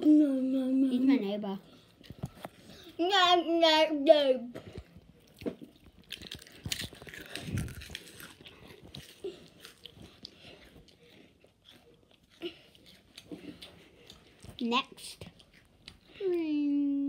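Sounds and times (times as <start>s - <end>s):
child crunching a chip: 4.7s - 16.2s.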